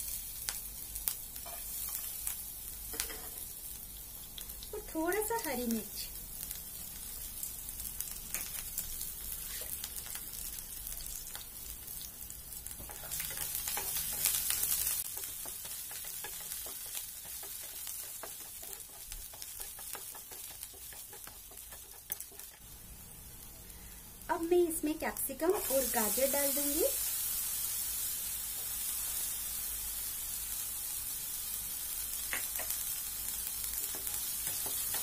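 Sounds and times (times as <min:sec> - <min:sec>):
garlic sizzling in hot oil: 0:00.0 - 0:35.0
spatula scraping and tapping pan: 0:01.4 - 0:02.1, 0:02.9 - 0:03.4, 0:12.8 - 0:22.6, 0:32.3 - 0:32.8, 0:33.8 - 0:35.0.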